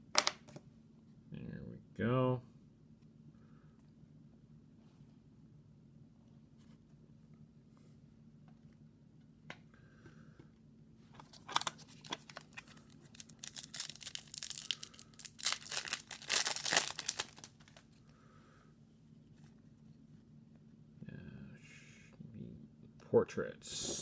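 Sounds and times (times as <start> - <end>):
wrapper tearing and crinkling: 11.4 - 17.8.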